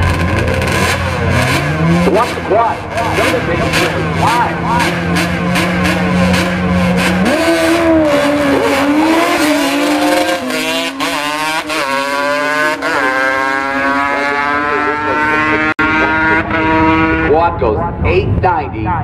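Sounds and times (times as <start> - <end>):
quad engine revving hard: 0.0 - 17.3.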